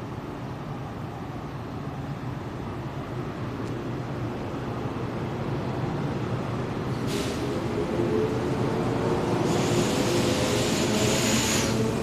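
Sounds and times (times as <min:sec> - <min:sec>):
train wheels rumbling: 0:04.5 - 0:12.0
short hiss: 0:07.1 - 0:07.5, 0:09.5 - 0:11.8.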